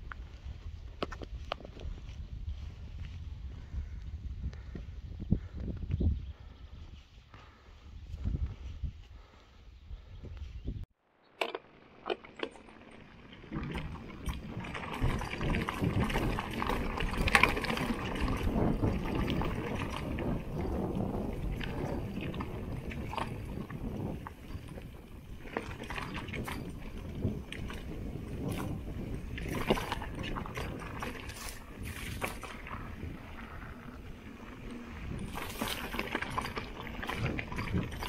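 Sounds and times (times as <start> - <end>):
tyres crunching over gravel: 11.6 - 38.0.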